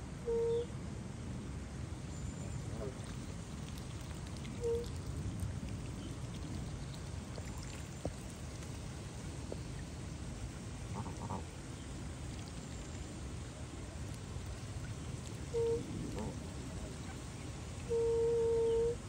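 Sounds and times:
steady low rumble: 0:00.0 - 0:19.0
goose bill slurping water: 0:02.8 - 0:09.8.

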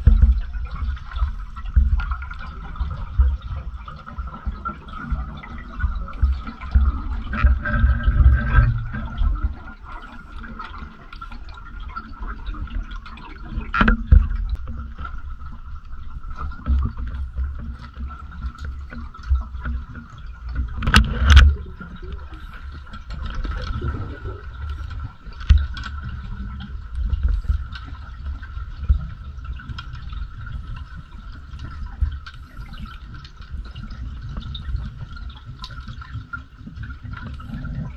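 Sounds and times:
underwater water rumbling: 0:00.0 - 0:37.9.

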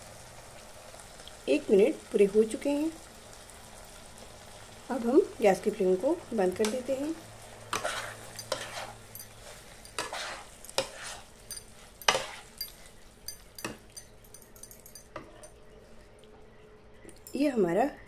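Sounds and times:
sauce sizzling faintly: 0:00.0 - 0:17.9
metal spatula scraping a pan: 0:07.7 - 0:14.4.

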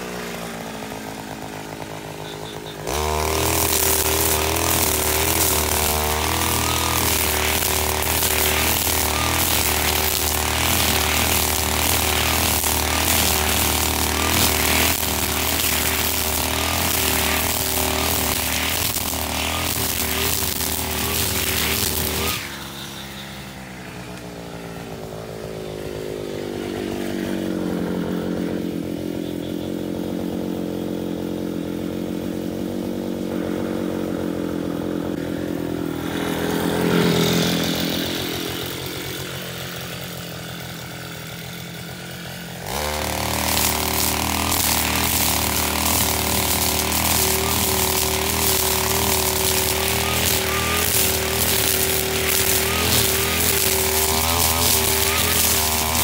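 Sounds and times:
trimmer line slashing grass: 0:00.0 - 0:23.4, 0:35.1 - 0:56.0
brush cutter engine: 0:00.0 - 0:56.0.

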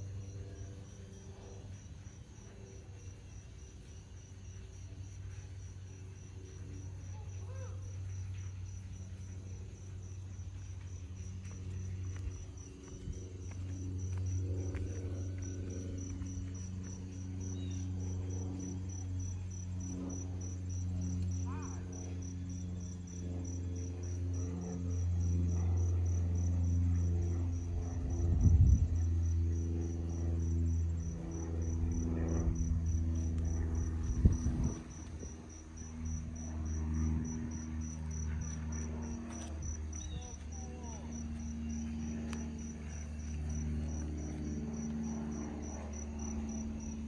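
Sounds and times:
insects chirping: 0:00.0 - 0:47.0
low aircraft engine drone: 0:00.0 - 0:47.0.

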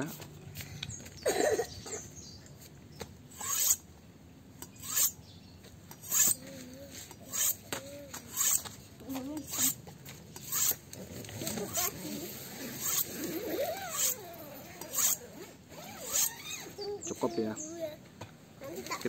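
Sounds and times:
knife scraping on honing steel: 0:03.3 - 0:03.8, 0:04.6 - 0:05.2, 0:05.9 - 0:06.5, 0:07.1 - 0:08.7, 0:09.4 - 0:16.7.

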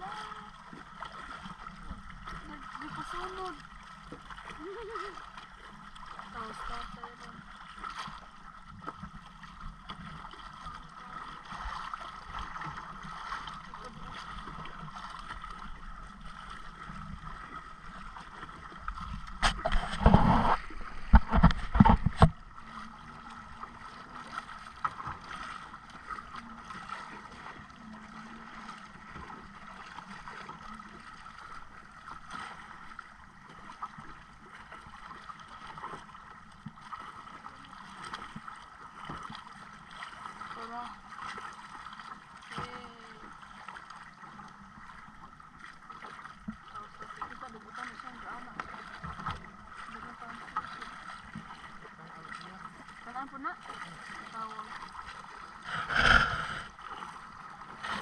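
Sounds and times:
loud splashing beside hull: 0:00.0 - 0:58.0
water lapping against boat hull: 0:00.0 - 0:58.0
wind on microphone: 0:19.2 - 0:22.4.

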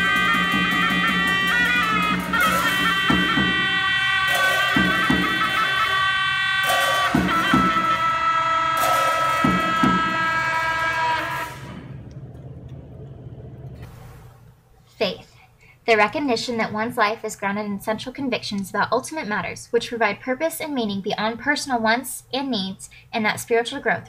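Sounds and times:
shrill horns: 0:00.0 - 0:12.4
cymbal crashes: 0:00.0 - 0:12.6
frame drum beats: 0:00.0 - 0:14.1
faint low hum: 0:11.5 - 0:19.4.

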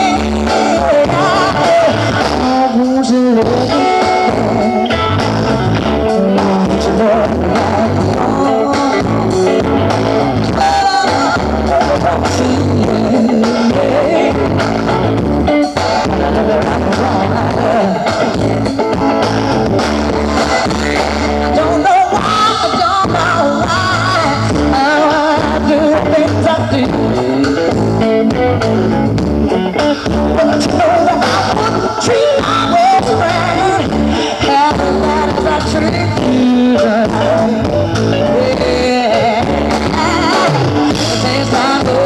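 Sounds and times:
woman singing: 0:00.0 - 0:05.0, 0:05.9 - 0:09.7, 0:10.4 - 0:14.7, 0:16.0 - 0:18.4, 0:21.4 - 0:27.8, 0:30.3 - 0:42.0
bass guitar: 0:00.0 - 0:42.0
drums: 0:00.0 - 0:42.0
electric guitars: 0:00.0 - 0:42.0.

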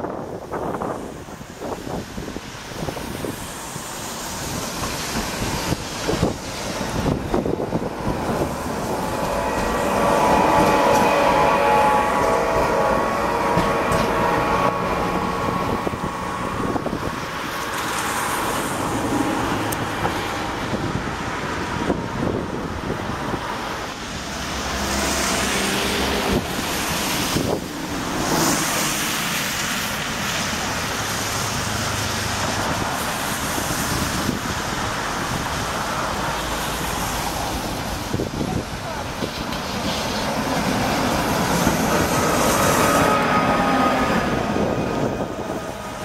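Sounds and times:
cars passing on wet road: 0:00.0 - 0:46.0
tram whine: 0:00.0 - 0:46.0.

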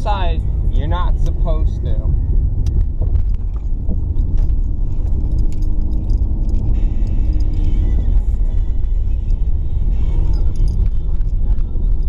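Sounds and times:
engine and road rumble: 0:00.0 - 0:12.0
small rattles and clicks: 0:02.6 - 0:12.0.

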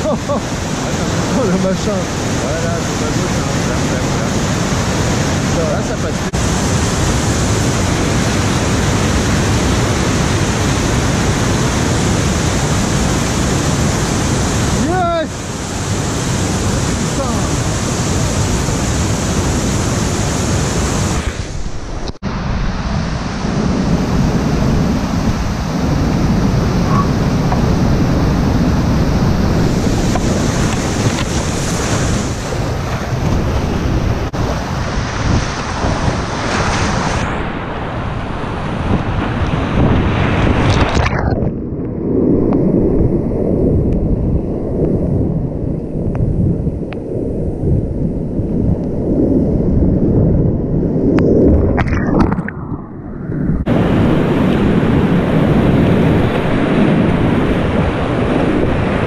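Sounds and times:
waterfall rushing: 0:00.0 - 0:21.6, 0:24.0 - 0:37.7
wind buffeting microphone: 0:00.0 - 0:59.0.

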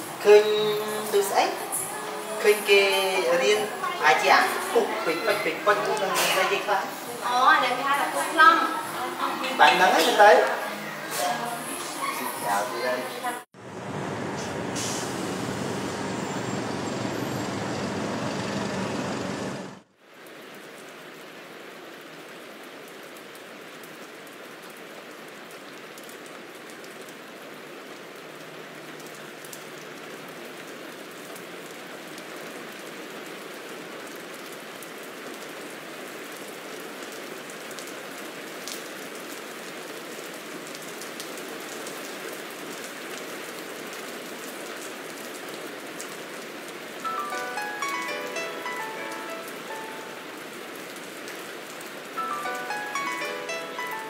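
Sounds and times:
rain hissing: 0:00.0 - 0:21.4, 0:32.3 - 0:54.0.

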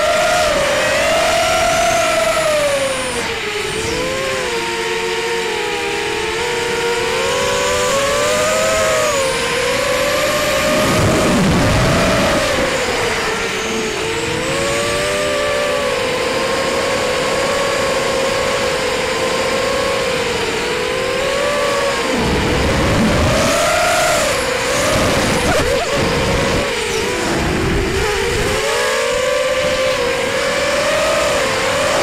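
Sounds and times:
quadcopter motors whining: 0:00.0 - 0:32.0
wind buffeting microphone: 0:09.6 - 0:15.3.

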